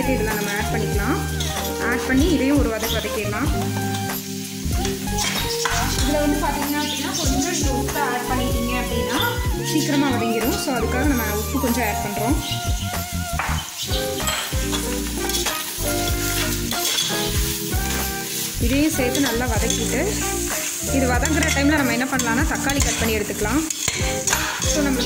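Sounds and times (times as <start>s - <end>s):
onions sizzling in oil: 0.0s - 25.0s
metal spoon scraping pot: 1.3s - 1.8s, 4.8s - 6.1s, 13.4s - 17.5s, 18.9s - 25.0s.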